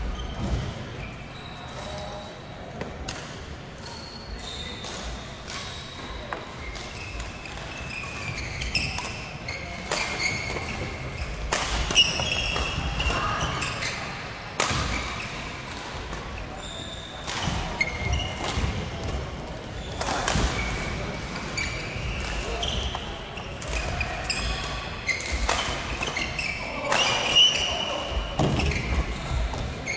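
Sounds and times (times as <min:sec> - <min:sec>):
shoe squeaks on court floor: 0:03.8 - 0:14.0, 0:16.4 - 0:18.7, 0:21.6 - 0:29.9.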